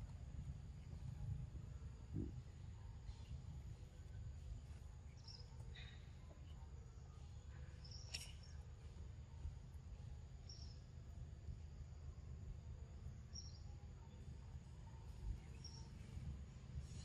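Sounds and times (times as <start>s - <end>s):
low steady rumble: 0.0s - 17.0s.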